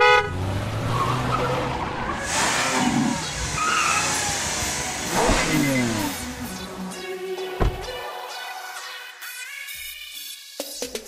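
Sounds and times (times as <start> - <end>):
tyres skidding: 0.3 - 6.9
car engine running: 4.1 - 6.8.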